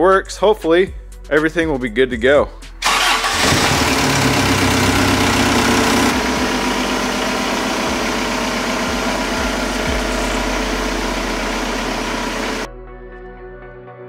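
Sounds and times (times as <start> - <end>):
truck engine idling: 2.8 - 12.7.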